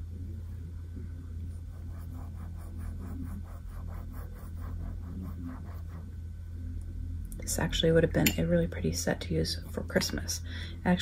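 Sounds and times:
paintbrush scratching on paper: 1.5s - 6.2s.

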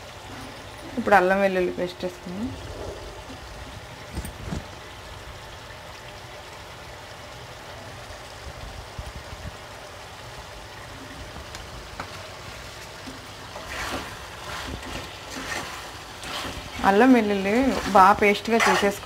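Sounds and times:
chicken simmering in a pan: 0.0s - 19.0s
scraping in a pan: 13.4s - 19.0s.

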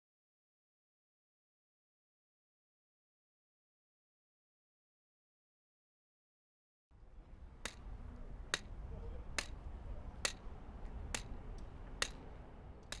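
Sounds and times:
low street ambience rumble: 6.9s - 13.0s.

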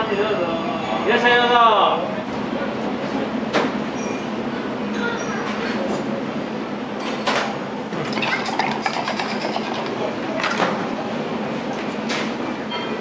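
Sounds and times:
dishes and utensils clinking: 7.0s - 10.8s.

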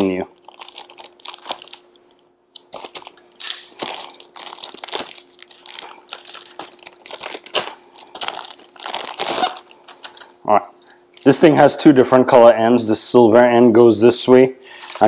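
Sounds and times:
plastic packaging crinkling: 0.0s - 11.5s, 14.7s - 15.0s.

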